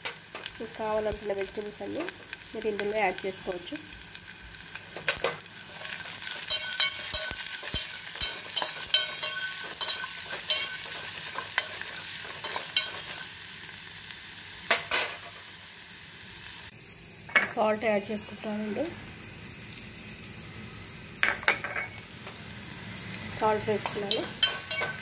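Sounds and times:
vegetables sizzling in hot oil: 0.0 - 25.0
spoon scraping and clinking on pot: 5.8 - 13.2, 23.8 - 25.0.

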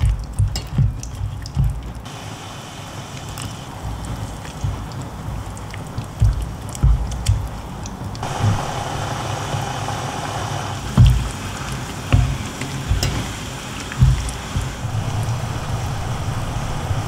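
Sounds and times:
spatula thumping pan: 0.0 - 2.0, 6.0 - 7.6, 10.9 - 14.9
liquid sloshing: 0.0 - 16.8
broth simmering in a wok: 0.0 - 17.0.

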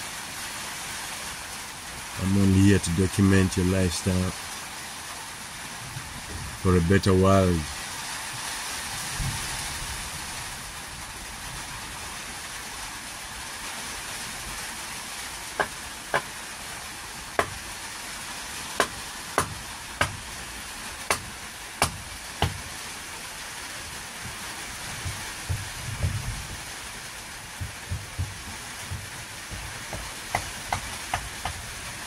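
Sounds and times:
rain on a roof: 0.0 - 32.0
sharp taps: 17.4 - 17.6, 18.8 - 20.2, 27.6 - 31.6.

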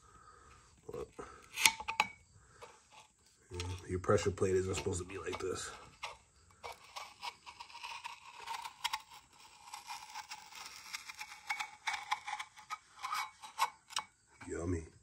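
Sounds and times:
screwdriver scraping and tapping metal: 1.5 - 2.2, 2.9 - 14.2.

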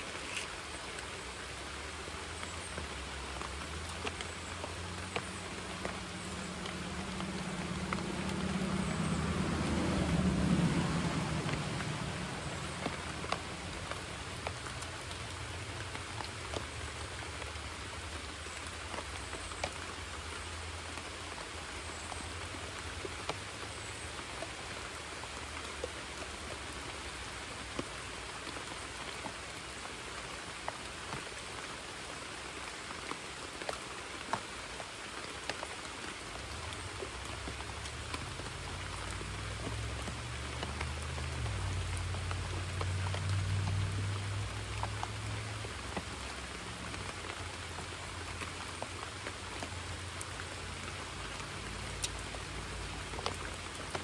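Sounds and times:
rain falling on water: 0.0 - 54.0
low rumble: 6.2 - 13.9.

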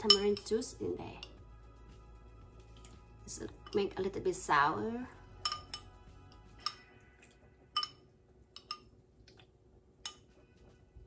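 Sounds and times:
metal spoon clinking on ceramic bowl: 0.0 - 1.4, 5.4 - 6.0, 6.6 - 6.9, 7.7 - 8.9, 10.0 - 10.3.

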